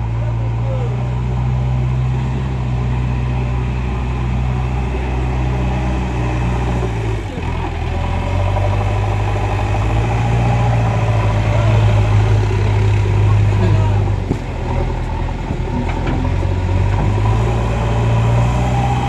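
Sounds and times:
backhoe diesel engine running: 0.0 - 19.0.

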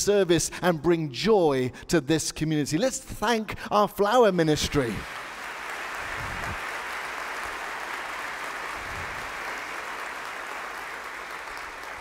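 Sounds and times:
congregation applauding: 4.6 - 12.0.

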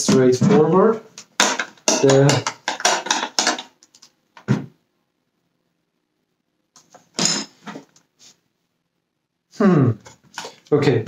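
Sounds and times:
plastic parts clicking: 2.0 - 4.5.

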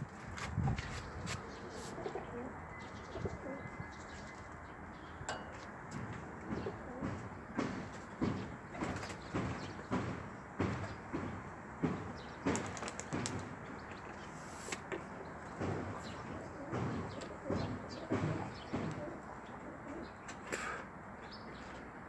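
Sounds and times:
pigeons cooing: 1.5 - 4.0, 6.1 - 8.5, 15.6 - 20.8.

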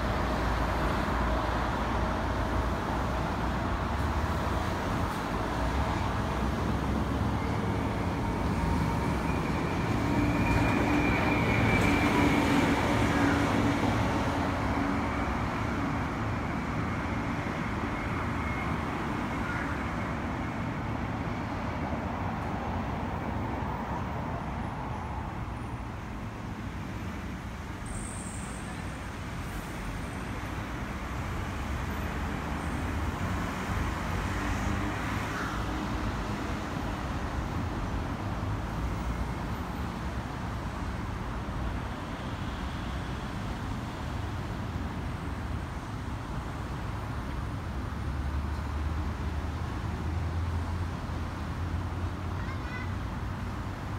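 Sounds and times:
road traffic: 0.0 - 53.9.

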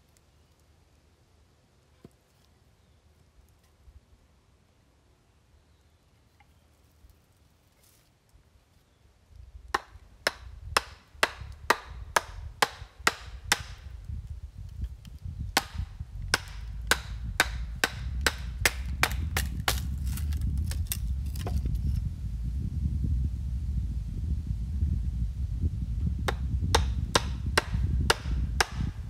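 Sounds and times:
low rumble: 13.9 - 29.0.

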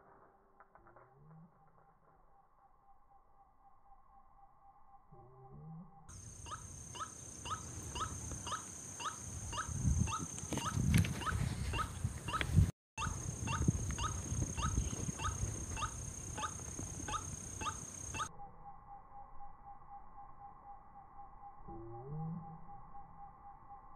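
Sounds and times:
bird clucking call: 6.5 - 18.3.

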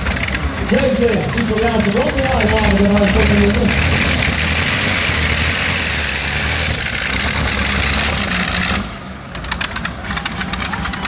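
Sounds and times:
fast clicking rattle: 0.0 - 4.6, 9.4 - 11.0
pulling tractor engines running: 0.0 - 11.0.

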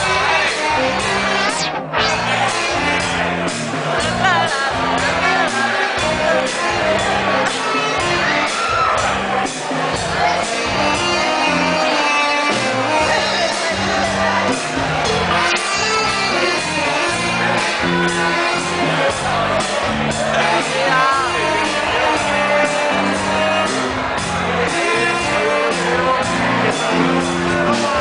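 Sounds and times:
live dance music: 0.0 - 28.0
man singing and shouting: 20.3 - 22.2.

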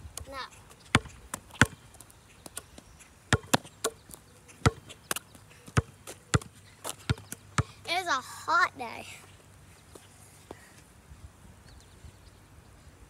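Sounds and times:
basketball bouncing on asphalt: 0.2 - 7.9.

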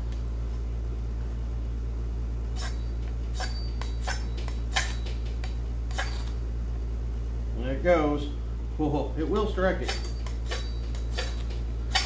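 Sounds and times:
steady low hum: 0.0 - 12.0
machete scraping ferro rod: 2.6 - 5.1, 9.8 - 12.0.

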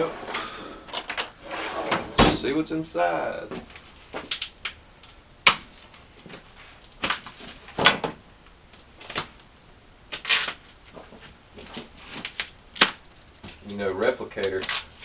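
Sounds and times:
plastic strapping snapping: 14.4 - 15.0.

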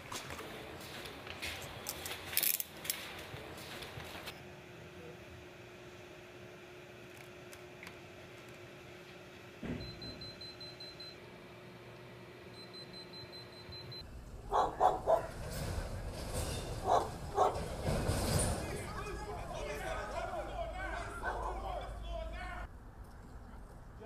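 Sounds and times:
street noise: 0.0 - 5.2, 14.0 - 24.0
dog barking: 14.5 - 15.4, 16.8 - 17.7, 21.2 - 21.6.

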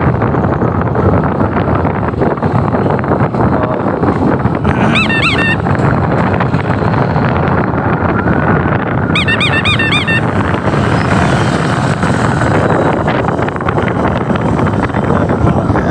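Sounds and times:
motorcycle engine and road noise: 0.0 - 15.9
wind rushing over microphone: 0.0 - 15.9
high chirping calls: 4.8 - 5.6, 9.2 - 10.3.

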